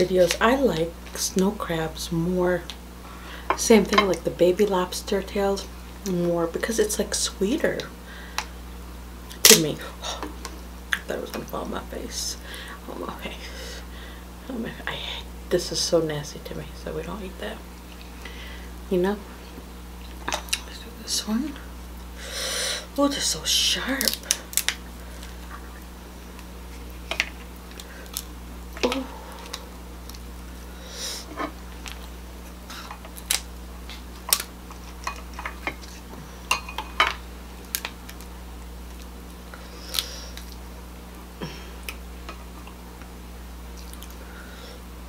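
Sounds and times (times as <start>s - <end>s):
steady low hum: 0.0s - 45.0s
crab shells cracking: 24.0s - 30.4s, 32.8s - 36.0s, 37.1s - 40.6s.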